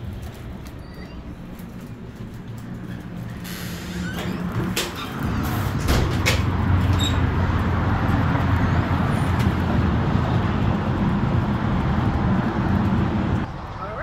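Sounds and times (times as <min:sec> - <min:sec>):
road traffic: 0:00.0 - 0:14.0
wind buffeting microphone: 0:04.5 - 0:13.8.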